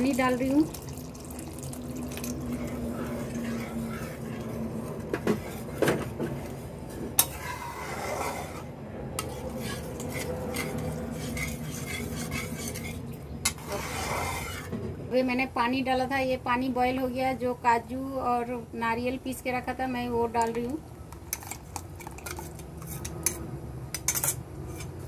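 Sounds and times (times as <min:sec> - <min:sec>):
spatula scraping a pan: 0:02.2 - 0:14.8, 0:21.3 - 0:23.4, 0:24.1 - 0:25.0.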